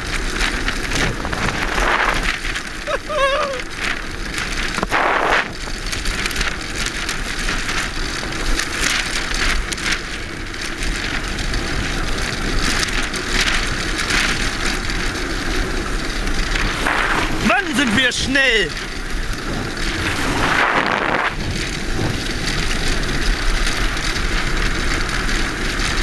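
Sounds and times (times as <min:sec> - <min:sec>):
wind rushing over microphone: 0:00.0 - 0:06.6, 0:15.8 - 0:26.0
wheels rolling over hard sand: 0:00.0 - 0:26.0.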